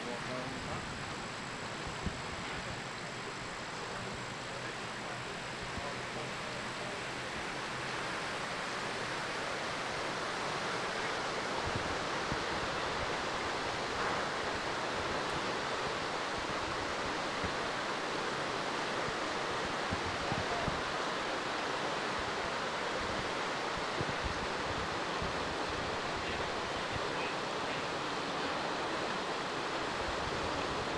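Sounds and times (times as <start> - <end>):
floodwater rushing: 0.0 - 30.9
wind on microphone: 0.5 - 6.0, 22.2 - 27.3.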